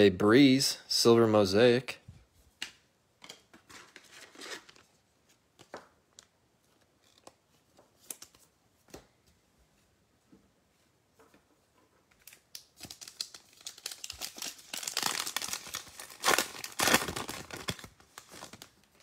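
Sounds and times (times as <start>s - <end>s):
cards and foil wrappers rustling: 12.1s - 19.0s.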